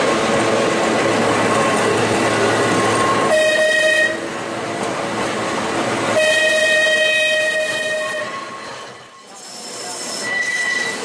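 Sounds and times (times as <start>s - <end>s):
tram rolling on rails: 0.0s - 11.0s
high-pitched wheel squeal: 6.2s - 11.0s.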